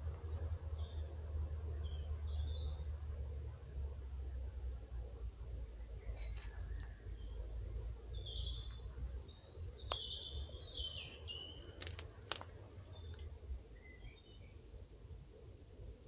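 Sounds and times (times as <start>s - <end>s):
songbird chirping: 0.0s - 3.2s, 5.7s - 14.8s
steady low rumble: 0.0s - 16.0s.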